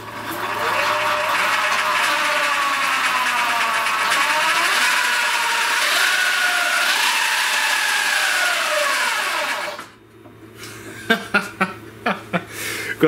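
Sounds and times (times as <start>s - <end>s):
electric motor whine: 0.0s - 10.0s
rushing chain noise: 0.3s - 9.8s.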